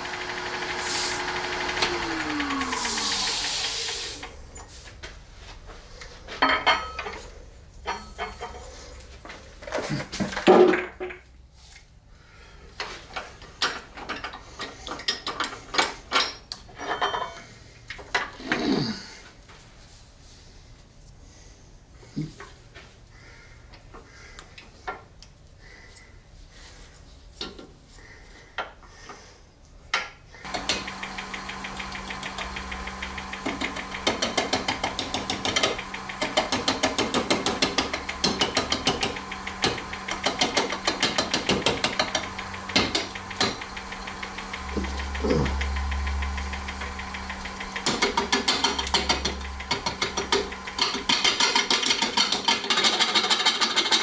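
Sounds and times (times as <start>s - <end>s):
wood lathe humming: 0.0s - 4.6s, 30.4s - 53.0s.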